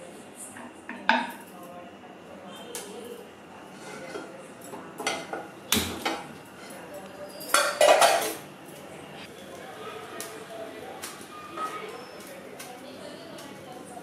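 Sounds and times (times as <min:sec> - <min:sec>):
frying pan and utensils clanking: 0:03.7 - 0:08.5.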